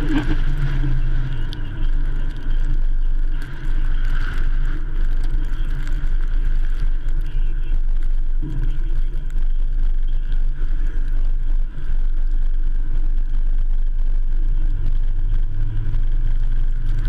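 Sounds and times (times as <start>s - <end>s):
tyres on snow: 0.0s - 13.0s
truck engine rumble: 0.0s - 17.0s.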